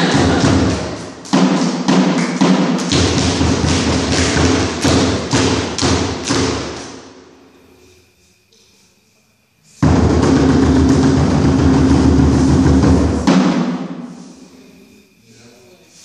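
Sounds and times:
dance music with pounding drums: 0.0 - 6.9.

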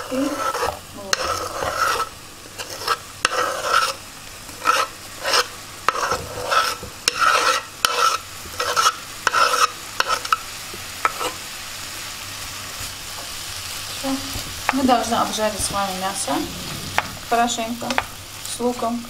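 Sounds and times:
meat sizzling in fat: 0.0 - 19.0
onion scraped off wooden board: 0.1 - 4.0, 4.6 - 10.4.

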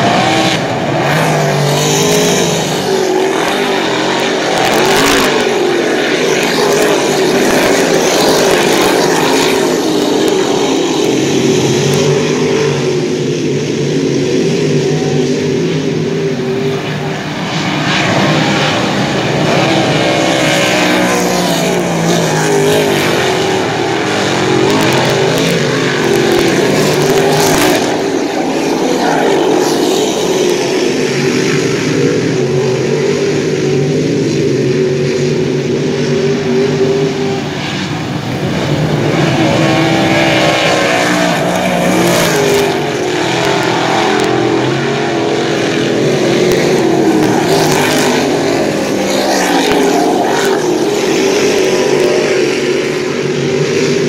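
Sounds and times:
race car engines passing: 0.0 - 54.0.

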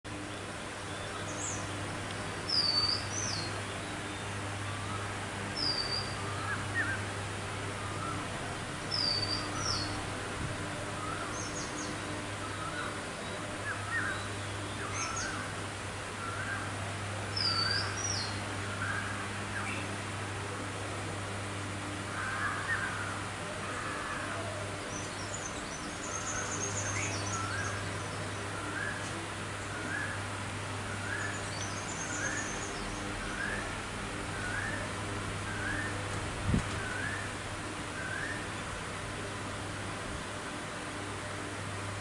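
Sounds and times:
steady low hum: 0.1 - 42.0
bird whistling song: 2.5 - 3.5, 5.6 - 7.0, 34.4 - 34.9, 35.5 - 36.0, 36.8 - 37.3, 38.0 - 38.5.

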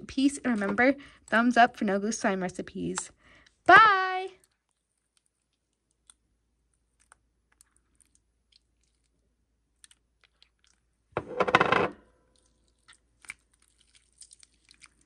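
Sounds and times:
slime wet squelch: 4.4 - 11.1, 12.2 - 15.0.

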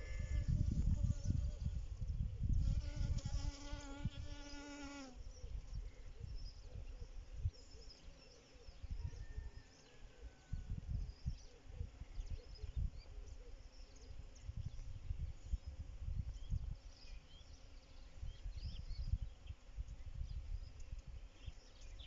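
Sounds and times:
honeybee buzzing: 0.0 - 1.8, 2.6 - 5.2
low wind rumble on microphone: 0.0 - 7.8, 8.7 - 22.0.

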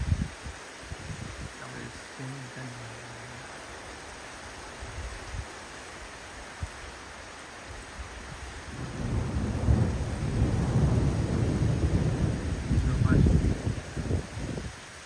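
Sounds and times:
rain hiss: 0.0 - 15.0
thunder rumbling: 8.7 - 14.8.

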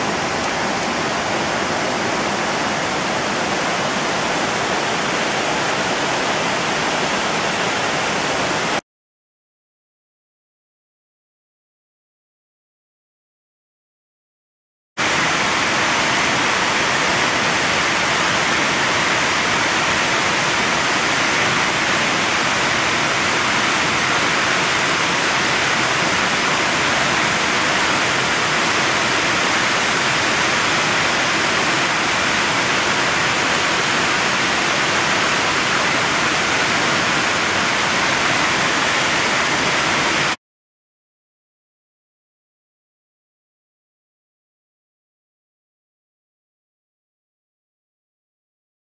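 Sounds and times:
waterfall roaring: 0.0 - 8.8, 15.0 - 40.4.

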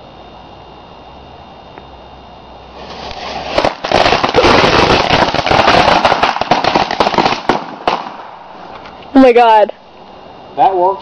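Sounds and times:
firecracker fuse fizzing: 2.7 - 9.5
firecrackers cracking and popping: 2.8 - 9.2.

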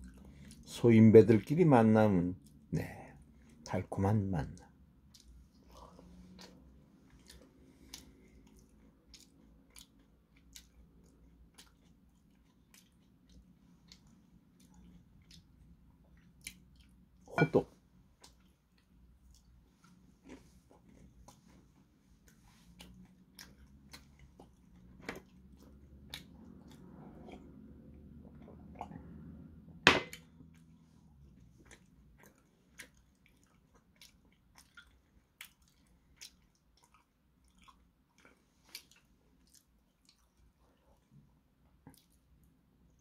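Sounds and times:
man chewing: 5.0 - 17.4, 18.0 - 29.4, 30.2 - 43.0.

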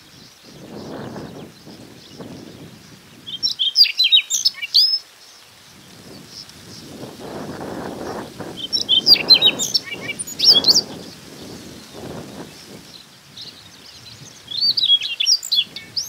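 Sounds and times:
bird singing whistled warbled notes: 3.3 - 5.0, 8.6 - 11.0, 13.4 - 16.0.

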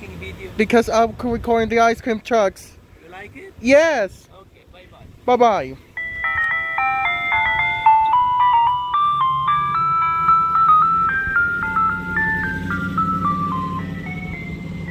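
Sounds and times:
van engine hum: 5.8 - 14.9
electronic chime jingle: 6.0 - 14.9.

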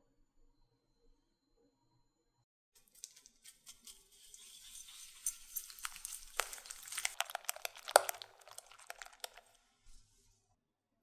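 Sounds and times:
whisk beating in a glass bowl: 3.0 - 9.5.

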